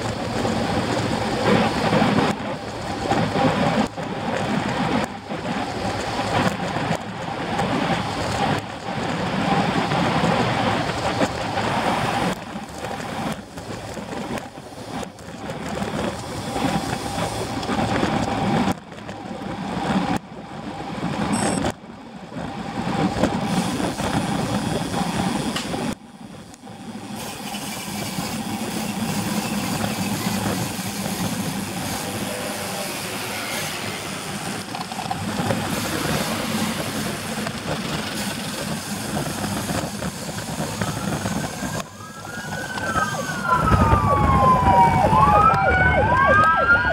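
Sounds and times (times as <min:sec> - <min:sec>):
tyre noise on wet road: 0:00.0 - 0:46.9
wind on camera microphone: 0:00.0 - 0:46.9
passing car traffic: 0:21.6 - 0:46.9
siren wailing: 0:40.7 - 0:46.9.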